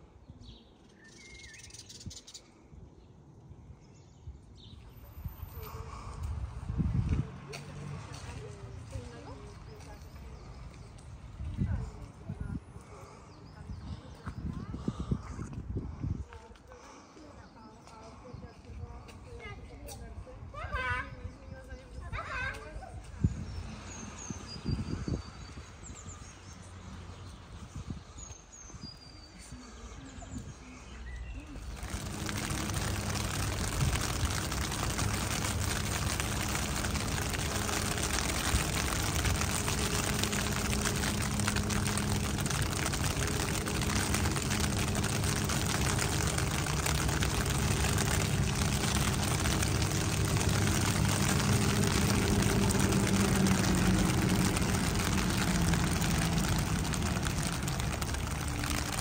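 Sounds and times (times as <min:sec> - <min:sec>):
rain pattering: 0:05.0 - 0:13.6, 0:31.5 - 0:59.0
low hum: 0:31.7 - 0:59.0.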